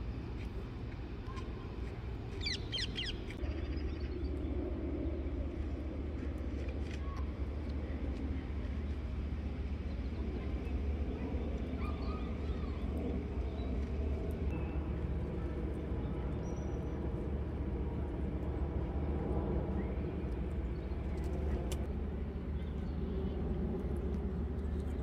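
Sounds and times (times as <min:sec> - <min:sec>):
steady low rumble: 0:00.0 - 0:25.0.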